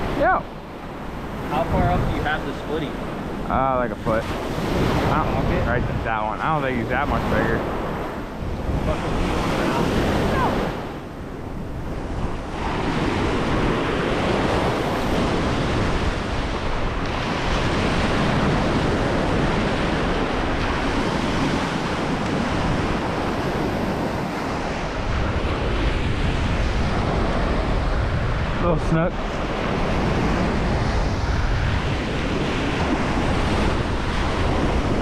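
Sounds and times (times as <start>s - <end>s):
small waves breaking on beach: 0.0s - 35.0s
wind buffeting microphone: 0.0s - 35.0s.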